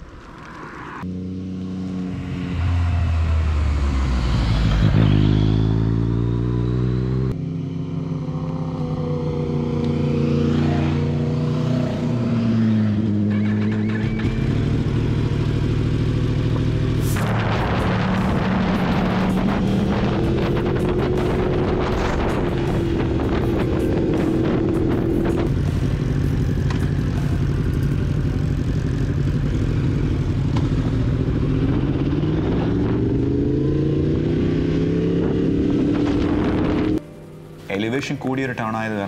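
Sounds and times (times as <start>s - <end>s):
motorcycle engine accelerating: 0.4s - 38.4s
wind rushing over microphone: 17.2s - 25.6s.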